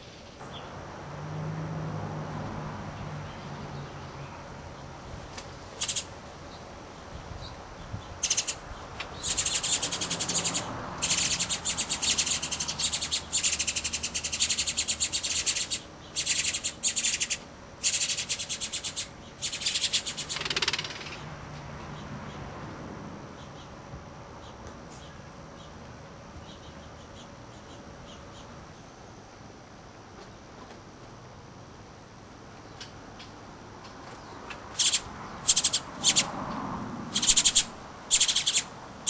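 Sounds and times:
nestlings cheeping: 5.8 - 6.2, 8.0 - 21.2, 34.6 - 36.3, 37.1 - 38.8.

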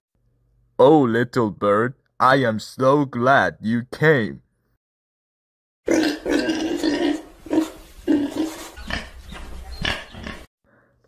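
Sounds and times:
pig grunting: 5.9 - 10.5.

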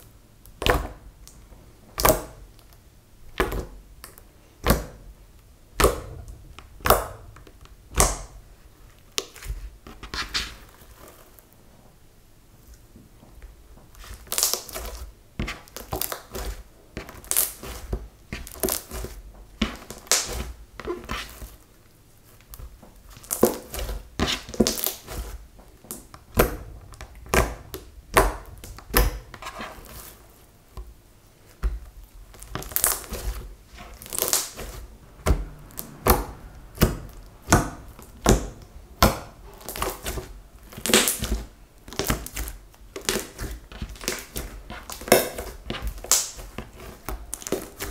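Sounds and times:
slime squelching: 3.3 - 11.3, 13.9 - 21.6, 22.2 - 47.9
slime popping: 31.7 - 47.9.

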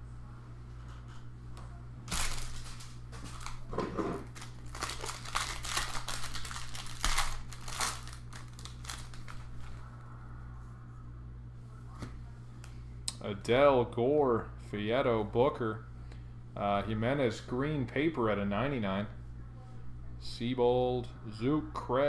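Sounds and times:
plastic wrapper crinkling and tearing: 2.1 - 9.8.

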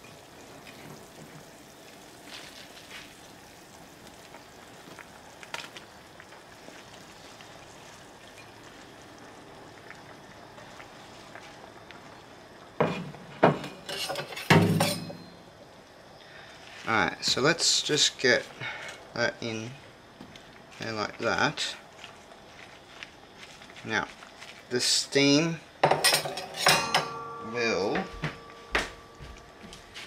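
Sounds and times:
soup simmering: 0.0 - 14.1, 15.3 - 24.8.

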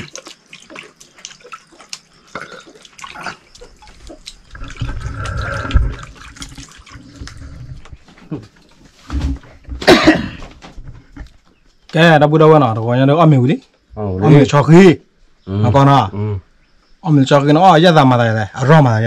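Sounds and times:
water splashing in plastic basin: 0.0 - 9.7.

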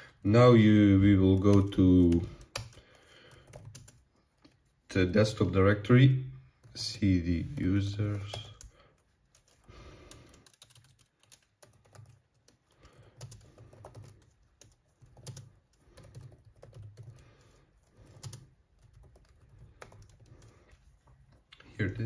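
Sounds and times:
typing on computer keyboard: 1.1 - 4.6, 7.5 - 21.5.

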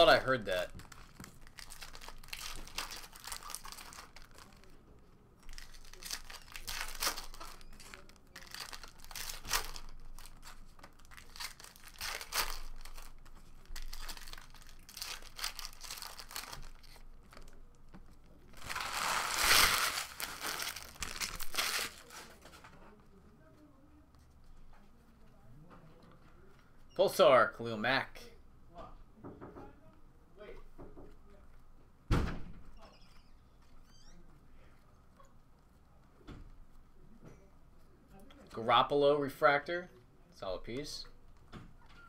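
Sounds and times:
foil wrappers crinkling and tearing: 0.0 - 4.8, 5.4 - 17.6, 18.6 - 22.4.

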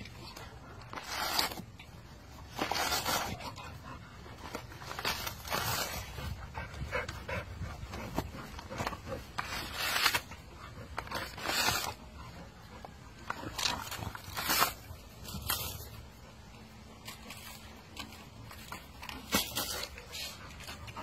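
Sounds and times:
coconut husk ripping: 0.0 - 3.6, 4.3 - 6.4, 8.0 - 12.2, 13.2 - 16.1, 17.0 - 21.0
dog panting: 5.9 - 9.4.

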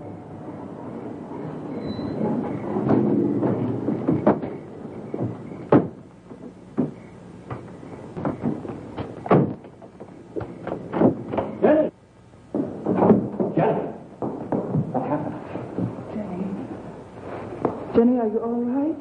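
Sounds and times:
knocks and thuds: 2.4 - 11.8, 12.5 - 16.0.

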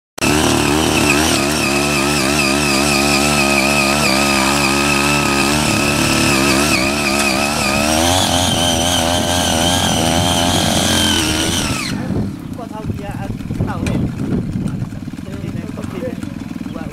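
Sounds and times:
power tiller engine running: 0.2 - 16.9.

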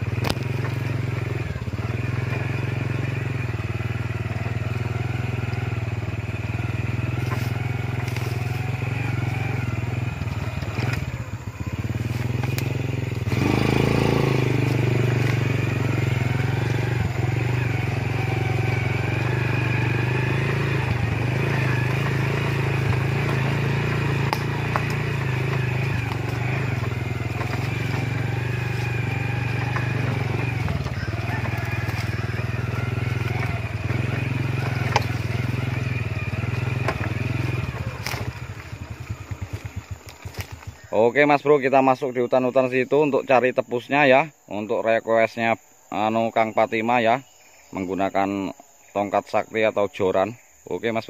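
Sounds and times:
small motorcycle engine: 0.0 - 43.5.

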